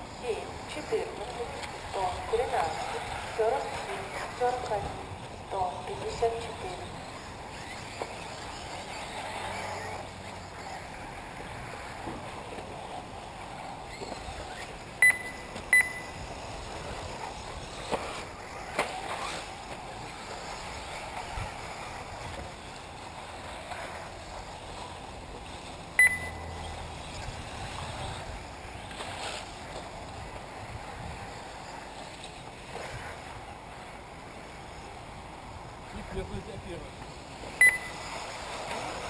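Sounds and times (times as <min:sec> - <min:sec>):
electric toy cars running on dirt: 0:00.0 - 0:39.0
open-air background noise: 0:00.0 - 0:39.0
short high electronic beeps: 0:15.0 - 0:16.2, 0:26.0 - 0:26.6, 0:37.6 - 0:38.1.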